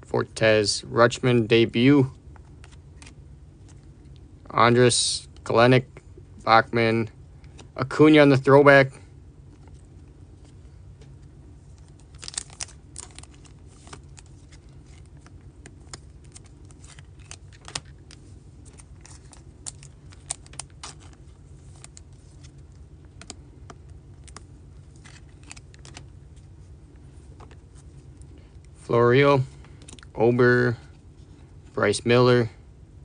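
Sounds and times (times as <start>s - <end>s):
cards being flipped through: 2.4s - 3.9s, 9.5s - 26.5s, 27.2s - 28.4s.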